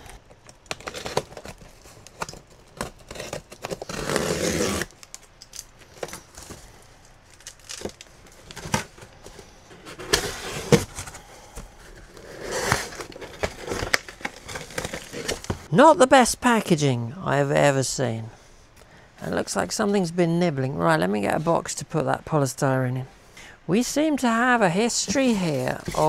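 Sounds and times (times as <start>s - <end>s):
packing tape tearing: 0.0s - 9.2s, 12.0s - 15.7s, 25.5s - 26.0s
polystyrene packing rustling: 0.0s - 15.7s, 25.1s - 26.0s.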